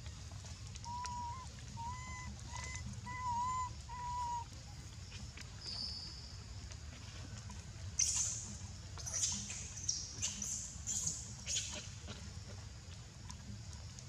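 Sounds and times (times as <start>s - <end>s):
animal whistle-like calls: 0.8s - 4.5s.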